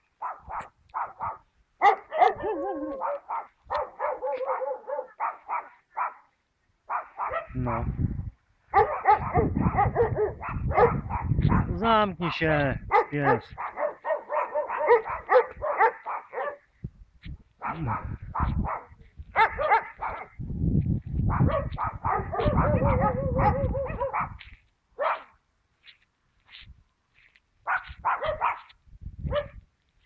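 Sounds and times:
dog barking: 0:00.2 - 0:06.3, 0:06.9 - 0:07.9, 0:08.7 - 0:11.7, 0:12.9 - 0:16.7, 0:17.6 - 0:20.4, 0:21.3 - 0:24.4, 0:25.0 - 0:25.4, 0:27.6 - 0:28.7, 0:29.3 - 0:29.6.

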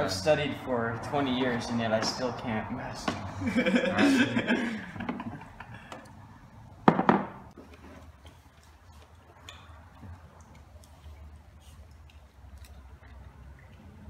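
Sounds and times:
knock on hard surface: 0:06.9 - 0:07.4.

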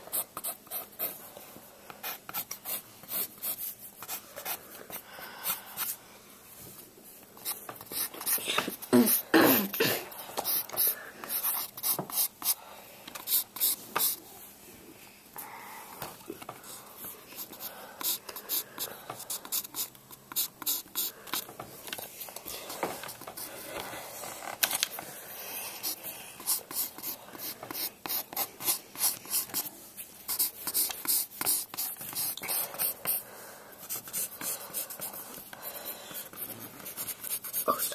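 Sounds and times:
pencil scratching on paper: 0:00.0 - 0:01.3, 0:01.9 - 0:06.0, 0:07.4 - 0:09.2, 0:10.4 - 0:12.6, 0:13.2 - 0:14.2, 0:16.6 - 0:21.5, 0:25.3 - 0:29.7, 0:30.3 - 0:33.2, 0:33.8 - 0:37.9.

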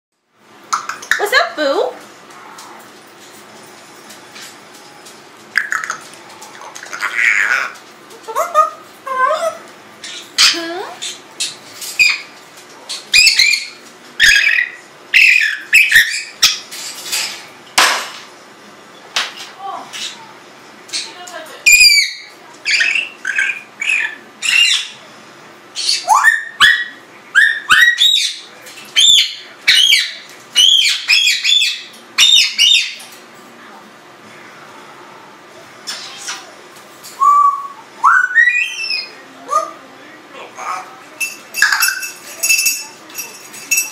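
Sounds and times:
parrot squawking: 0:05.6 - 0:12.3, 0:13.0 - 0:16.7, 0:20.9 - 0:25.0, 0:25.8 - 0:33.0, 0:35.8 - 0:36.5, 0:37.2 - 0:39.8, 0:40.4 - 0:41.0
parrot calls rising and falling: 0:37.2 - 0:39.2.

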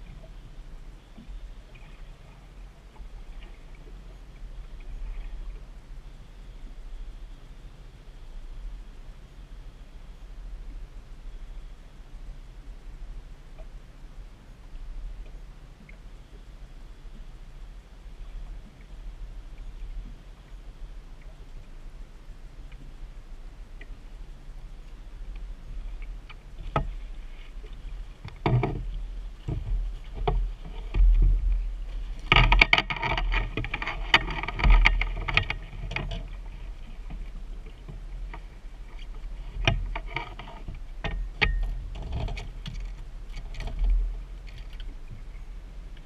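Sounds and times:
wind rumbling on microphone: 0:00.0 - 0:46.0
knocks and thumps on boat: 0:26.3 - 0:45.3.

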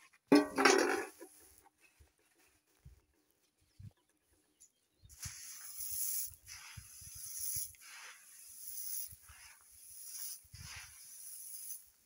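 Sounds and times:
dry maize kernels rustling: 0:05.1 - 0:12.0.

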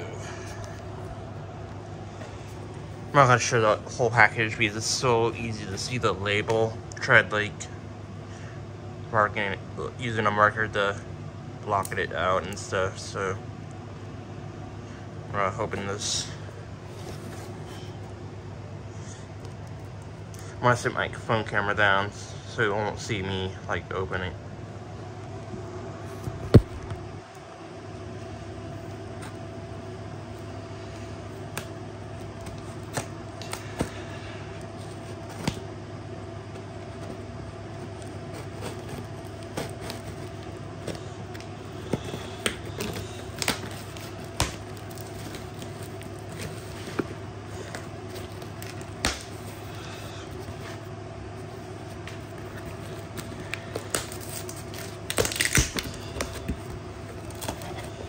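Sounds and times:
steady low hum: 0:00.0 - 0:58.0
cardboard box being opened: 0:37.8 - 0:41.0.

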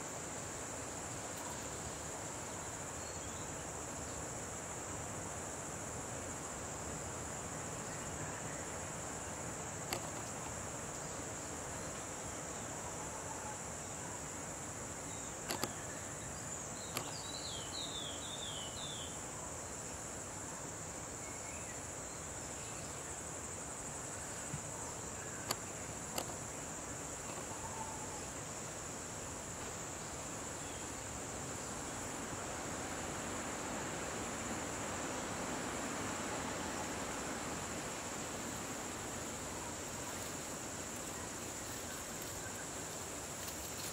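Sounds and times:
sharp clicks: 0:15.4 - 0:15.8.

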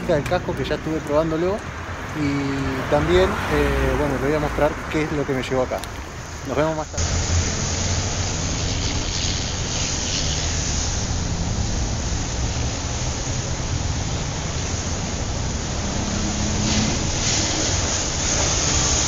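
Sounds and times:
road noise: 0:00.0 - 0:19.0
motorcycle engine drone: 0:06.4 - 0:19.0.

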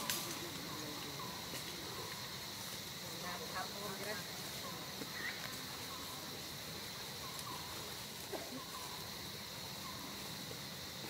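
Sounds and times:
faint insect chirps: 0:00.0 - 0:11.0
high-pitched insect drone: 0:00.0 - 0:11.0.

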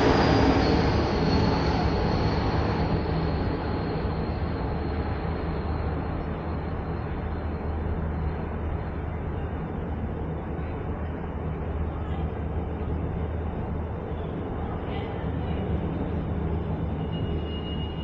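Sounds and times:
cable car machinery rumbling: 0:00.0 - 0:02.5
faint high whine: 0:15.6 - 0:18.0.

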